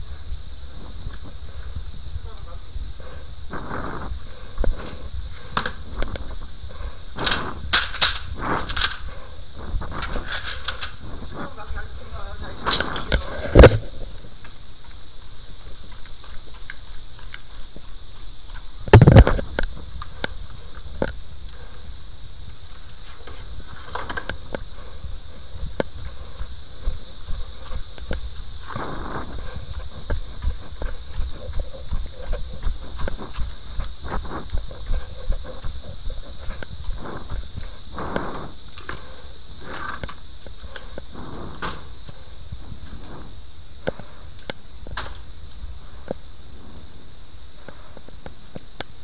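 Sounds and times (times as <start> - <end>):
footsteps on concrete: 0.0 - 21.6, 22.7 - 39.1
steady hiss: 0.0 - 49.0.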